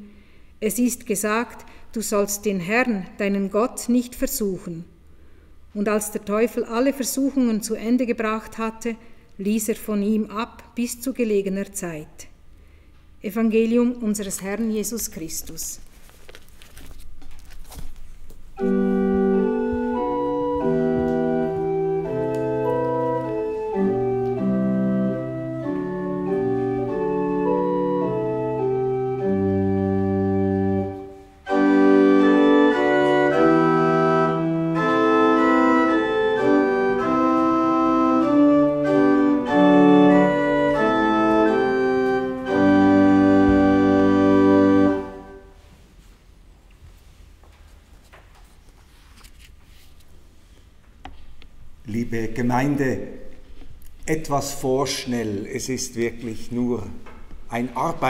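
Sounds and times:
pipe organ chords: 0:18.6 - 0:45.6.

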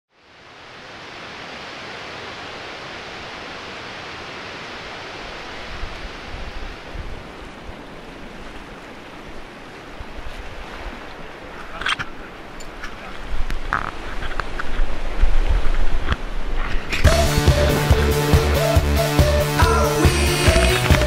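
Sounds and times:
waterfall rushing: 0:00.2 - 0:10.1, 0:16.9 - 0:21.0.

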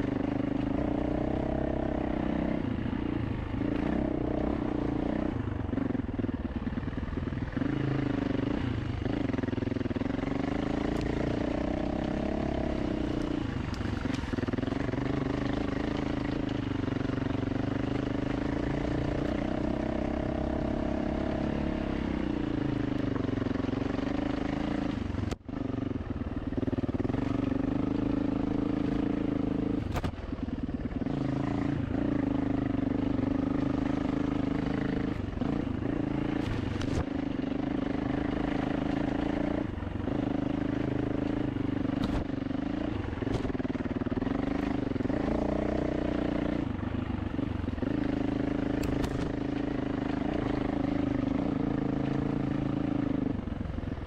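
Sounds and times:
dirt bike engine revving: 0:30.9 - 0:46.7.

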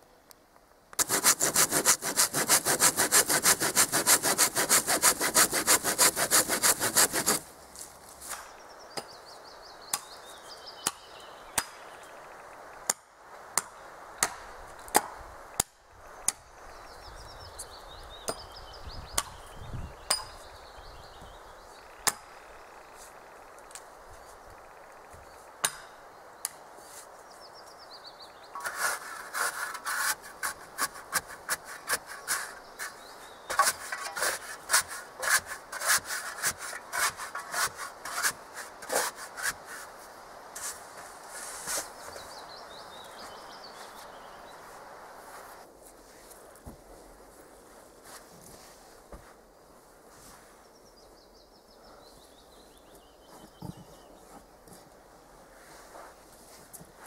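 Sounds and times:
hand saw cutting wood: 0:01.0 - 0:07.4, 0:28.6 - 0:39.9.

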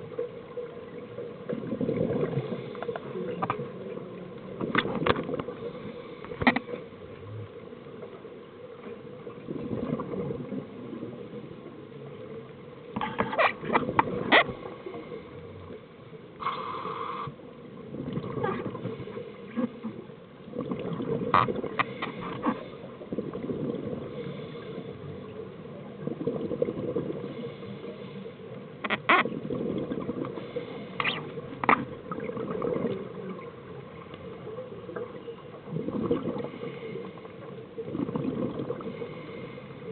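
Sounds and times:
exhaled bubbles gurgling: 0:00.0 - 0:15.8, 0:16.4 - 0:39.9
scuba regulator breathing underwater: 0:16.4 - 0:17.3, 0:23.9 - 0:25.1, 0:27.2 - 0:28.3, 0:30.3 - 0:31.3, 0:36.0 - 0:37.5, 0:38.2 - 0:39.9.

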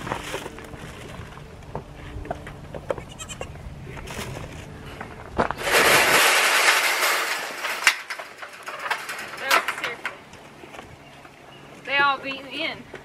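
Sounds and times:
goats bleating: 0:03.0 - 0:03.6.

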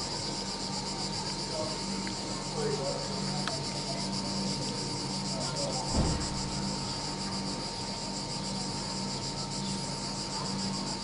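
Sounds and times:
cicadas buzzing: 0:00.0 - 0:11.0
low thump: 0:05.9 - 0:06.6.

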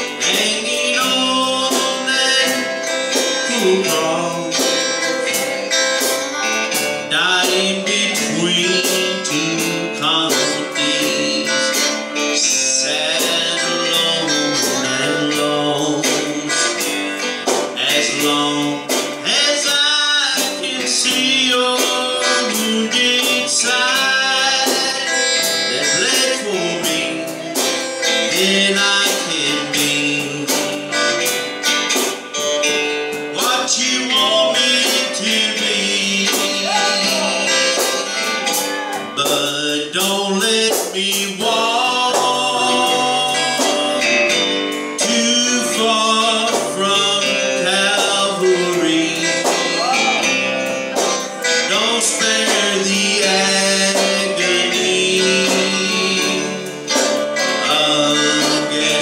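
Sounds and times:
country gospel music: 0:00.0 - 0:59.0
electric guitar: 0:00.0 - 0:59.0
man singing: 0:00.0 - 0:59.0.

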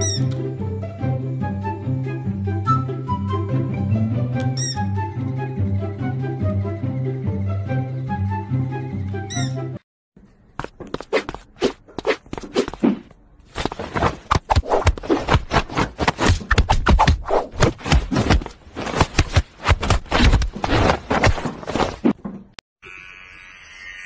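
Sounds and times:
rough scraping and rubbing: 0:13.5 - 0:22.2.

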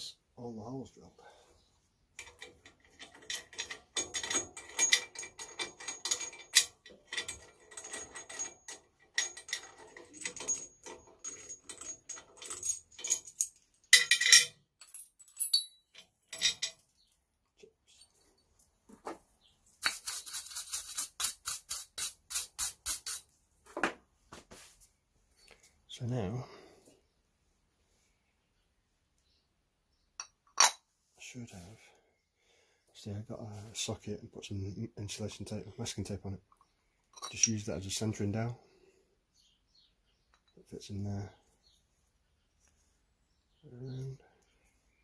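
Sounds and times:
metal clinking and rattling: 0:02.1 - 0:17.2, 0:36.6 - 0:38.2
high scratchy rattling: 0:19.8 - 0:23.3.

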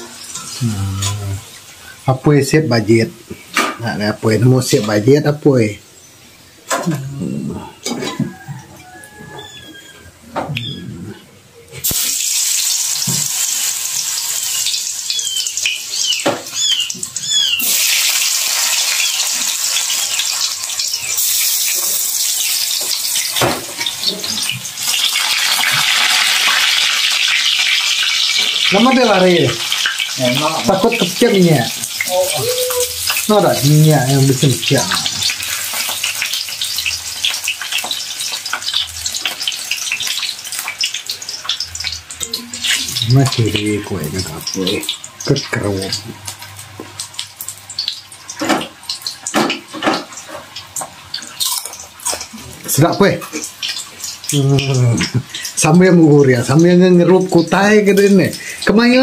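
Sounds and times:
slices sizzling in hot oil: 0:00.0 - 0:05.1, 0:11.8 - 0:59.0.

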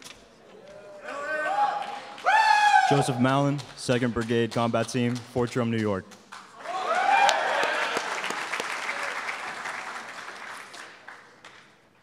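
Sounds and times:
audience cheer: 0:00.7 - 0:03.2, 0:06.6 - 0:10.5
audience applause: 0:06.5 - 0:11.8.

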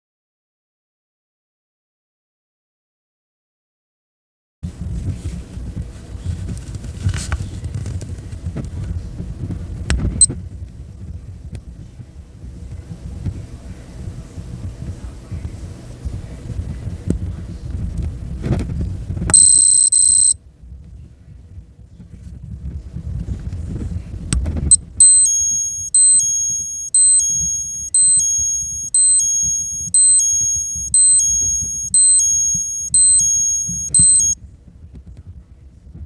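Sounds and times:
watch alarm beeping: 0:19.3 - 0:20.4, 0:25.0 - 0:34.4.

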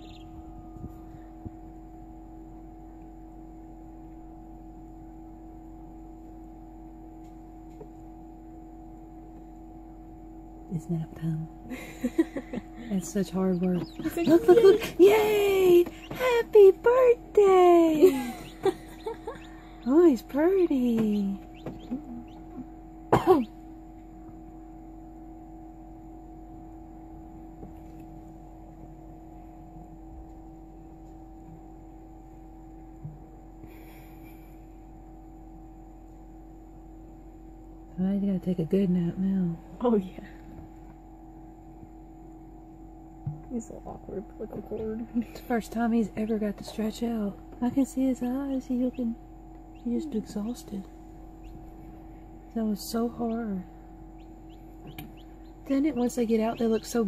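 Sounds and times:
incubator fan humming: 0:00.0 - 0:57.0
person clearing throat: 0:23.1 - 0:23.6.

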